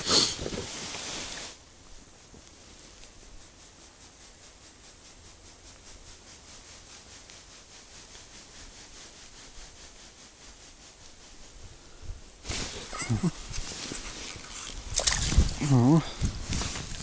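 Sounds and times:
faint rhythmic rubbing: 0.0 - 17.0.

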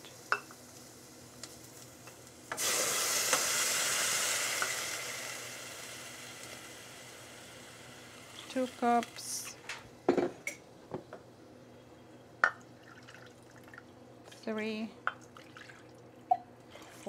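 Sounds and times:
liquid sizzling in hot pot: 0.0 - 9.6.

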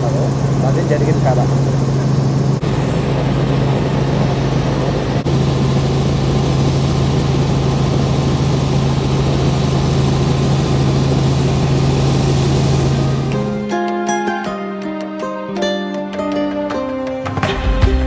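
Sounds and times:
helicopter engine and rotor drone: 0.0 - 16.6.

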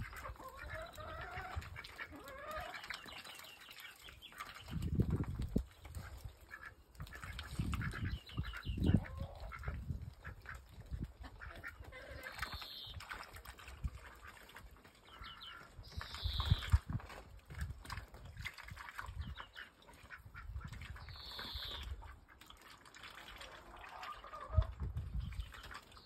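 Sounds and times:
ducks quacking: 0.0 - 3.0, 6.0 - 10.6, 11.2 - 12.9.

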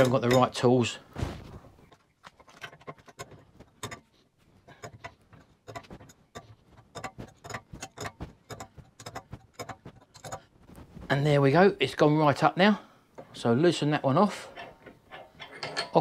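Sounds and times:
spanner clicking on nut: 2.4 - 4.1, 4.7 - 10.5.

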